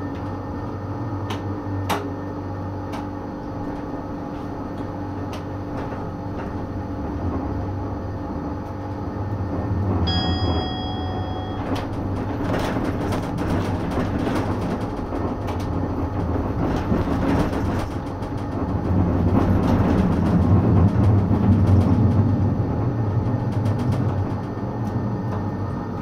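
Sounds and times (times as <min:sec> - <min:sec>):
tram motor hum: 0:00.0 - 0:26.0
wheel-on-rail noise: 0:03.5 - 0:26.0
wheels clicking and knocking on track: 0:09.5 - 0:26.0.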